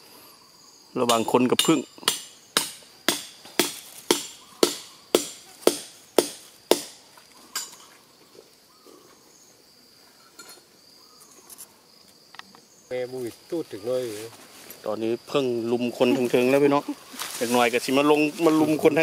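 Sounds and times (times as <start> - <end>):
hammer striking pegs: 1.1 - 7.0.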